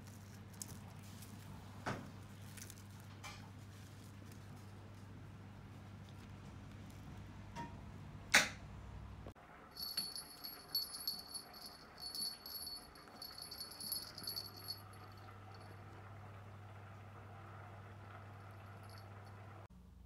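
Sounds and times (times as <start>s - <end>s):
low steady hum: 0.0s - 20.0s
small bell jingling: 9.8s - 15.8s.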